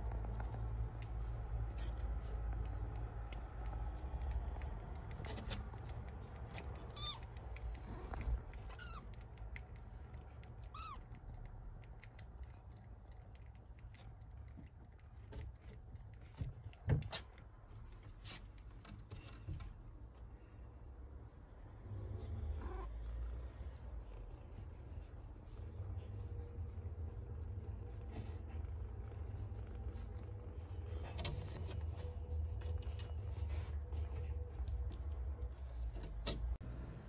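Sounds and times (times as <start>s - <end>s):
kitten mewing: 6.7s - 9.2s, 10.6s - 11.3s.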